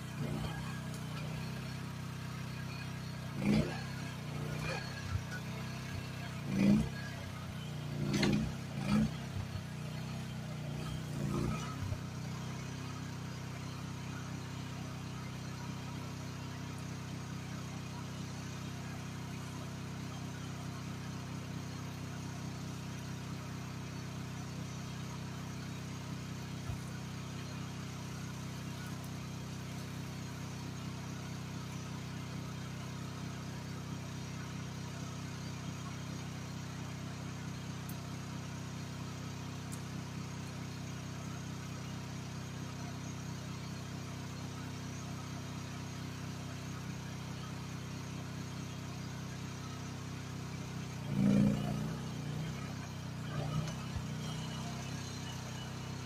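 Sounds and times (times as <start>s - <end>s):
excavator engine idling: 0.0s - 56.0s.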